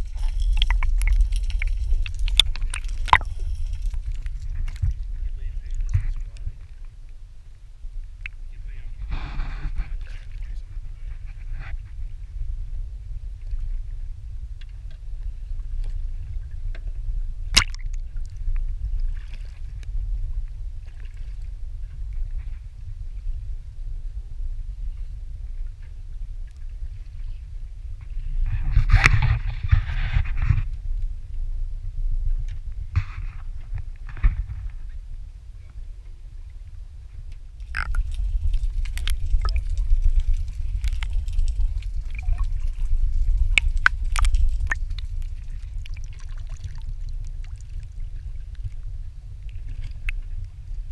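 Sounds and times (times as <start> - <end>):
sharp clicks and crackles: 0.0 - 5.0, 17.6 - 18.3, 37.6 - 47.7
wind rumble on microphone: 0.0 - 50.9.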